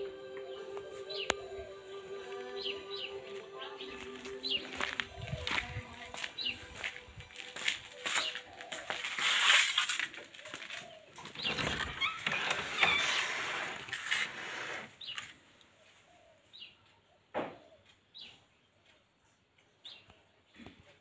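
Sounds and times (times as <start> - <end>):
small birds chirping: 10.2 - 13.0, 14.9 - 21.0.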